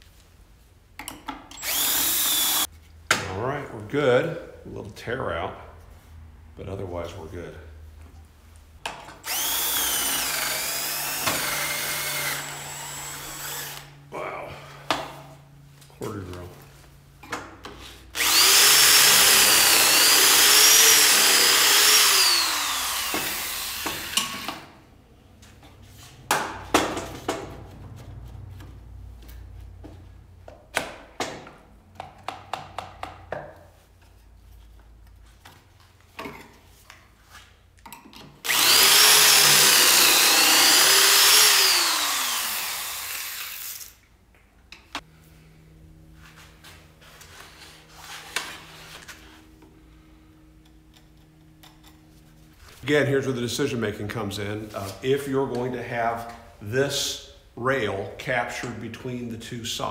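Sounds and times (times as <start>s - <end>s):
corded drill boring into wood: 1.5s - 2.7s, 9.2s - 13.9s, 18.2s - 24.6s, 38.4s - 44.0s.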